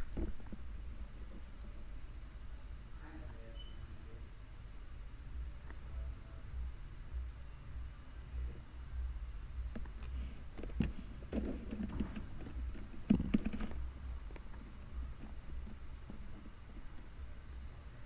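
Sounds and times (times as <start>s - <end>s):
low steady hum: 0.0s - 18.0s
plastic toys clicking and knocking: 10.8s - 13.8s.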